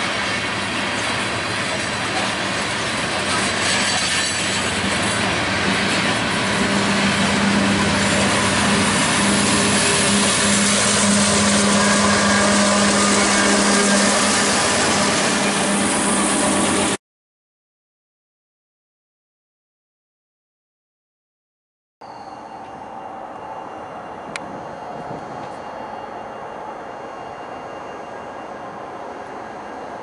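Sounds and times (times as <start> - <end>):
diesel locomotive engine hum: 0.0 - 17.0, 22.0 - 30.0
train wheels rumbling on rails: 0.0 - 17.0, 22.3 - 30.0.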